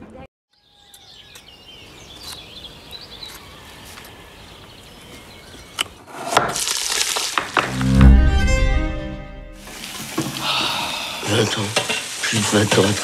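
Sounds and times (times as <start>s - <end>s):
birds singing: 0.5s - 6.0s.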